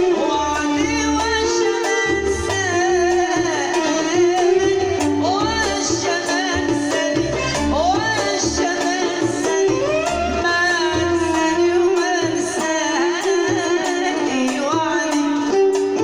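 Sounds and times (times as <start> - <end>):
woman singing: 0.0 - 16.0
bass and drum pulse: 2.1 - 12.6.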